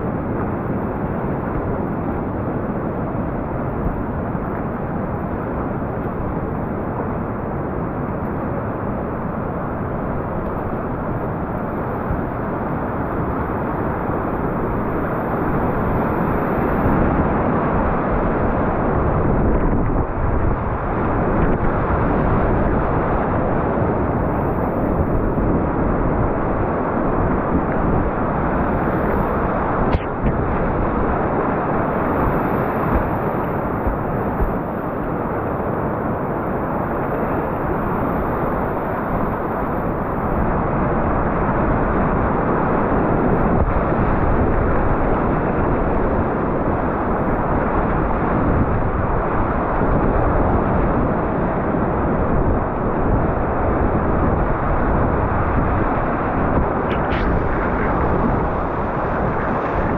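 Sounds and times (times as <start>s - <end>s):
river rapids rushing: 56.3s - 59.9s.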